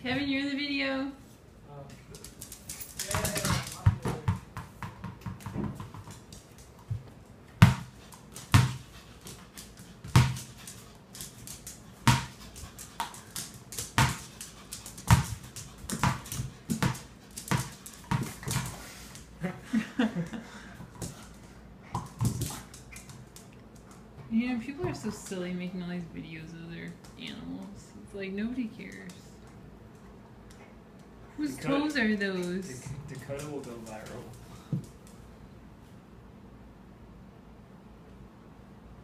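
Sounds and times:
ball bouncing on hard floor: 2.9s - 8.9s, 10.0s - 10.6s, 12.1s - 14.4s, 15.0s - 18.8s, 21.9s - 23.2s, 24.8s - 25.2s.

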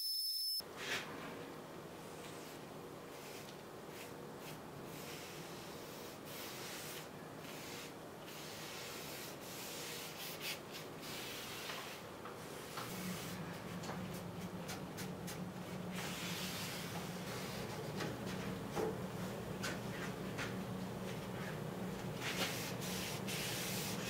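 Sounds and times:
hissing rub of cloth on wood: 2.3s - 13.4s.

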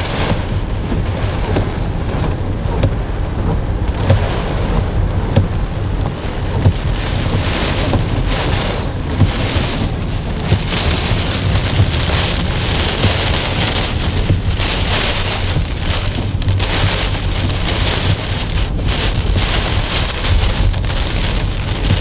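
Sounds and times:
rain hiss on a car: 0.0s - 22.0s
wind buffeting a car: 0.0s - 22.0s.

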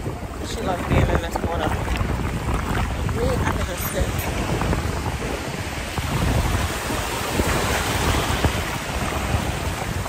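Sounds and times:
surf breaking in shallows: 0.0s - 10.0s
wind buffeting microphone: 0.0s - 10.0s.

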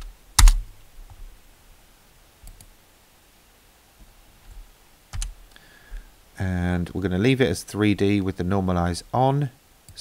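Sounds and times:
computer mouse clicks: 2.4s - 2.7s.

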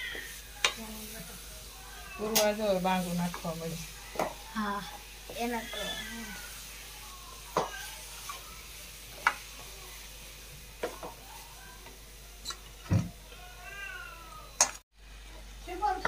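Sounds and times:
spatula stirring porridge: 0.0s - 9.9s
faint sizzle: 0.0s - 16.0s
cat meowing: 5.4s - 6.5s, 13.4s - 14.6s.

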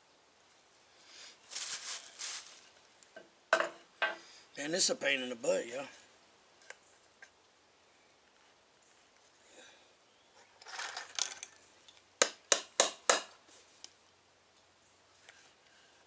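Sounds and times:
scraping rustle: 1.4s - 2.9s.

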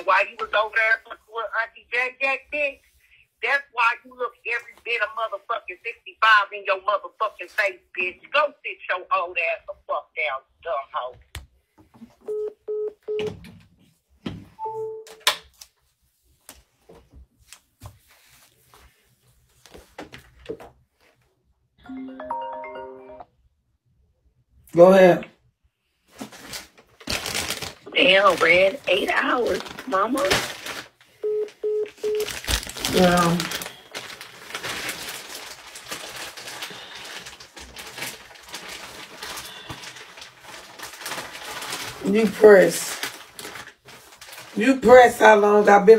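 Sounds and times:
fabric rustling on microphone: 15.8s - 21.3s.

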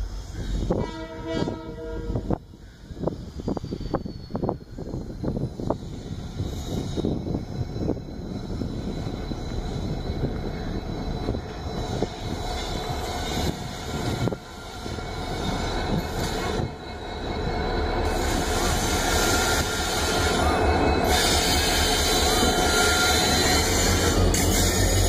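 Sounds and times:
wheel and rail hiss: 0.0s - 0.8s, 2.2s - 25.0s
diesel locomotive engine rumble: 0.0s - 25.0s.

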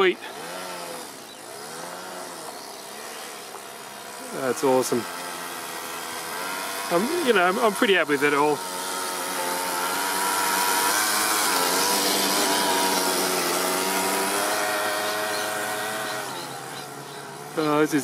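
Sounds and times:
small engine running at high revs: 0.0s - 18.0s.

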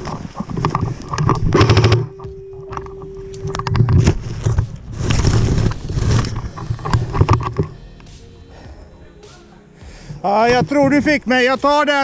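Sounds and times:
short steady tone: 1.7s - 4.0s
scuffling and thuds in snow: 4.0s - 7.1s.

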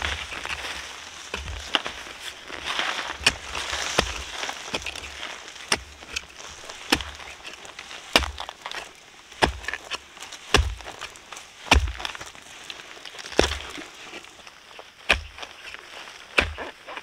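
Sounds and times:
heavy chopping blows: 9.4s - 12.3s.

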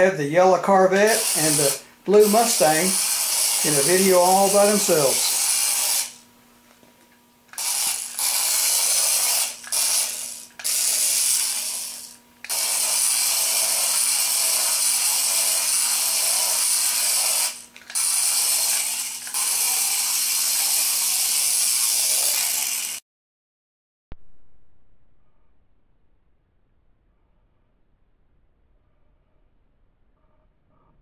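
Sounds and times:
toy car motor whining: 1.0s - 6.2s, 7.5s - 23.0s.

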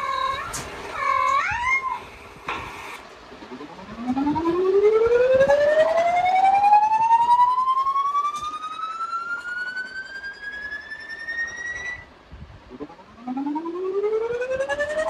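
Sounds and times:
siren-like rising tone: 3.4s - 12.1s, 12.7s - 15.0s.

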